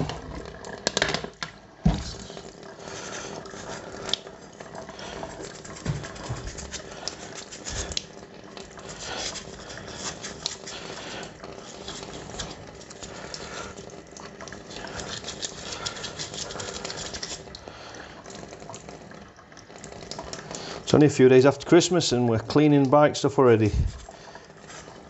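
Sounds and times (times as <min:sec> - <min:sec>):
tap water splashing into sink: 0:00.0 - 0:02.6, 0:05.3 - 0:07.2.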